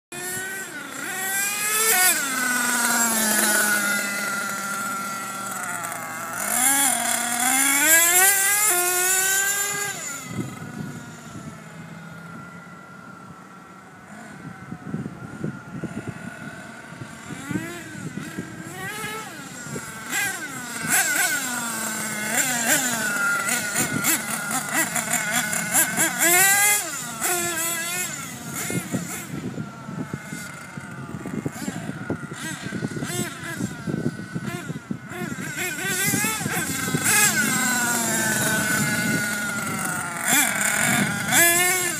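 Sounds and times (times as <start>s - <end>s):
small two-stroke engine whining: 0.1s - 41.9s.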